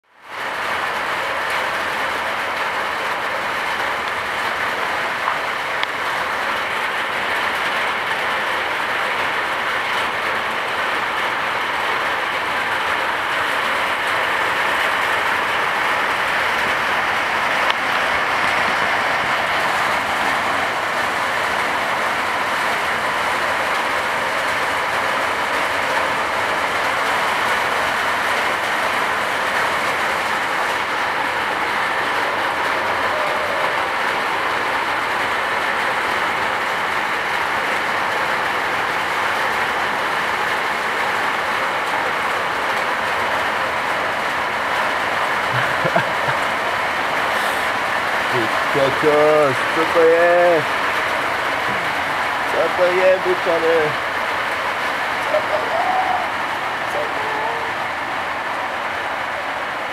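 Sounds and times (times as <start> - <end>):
heavy rain on a metal roof: 0.0 - 59.9.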